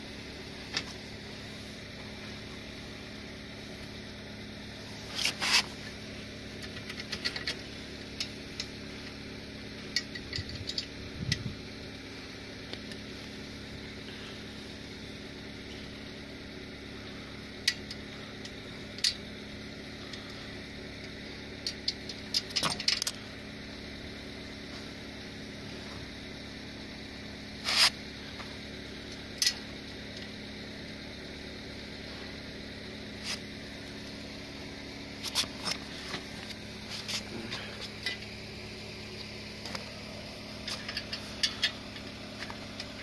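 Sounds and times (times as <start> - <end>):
metal clicks and clinks: 9.9 - 11.4.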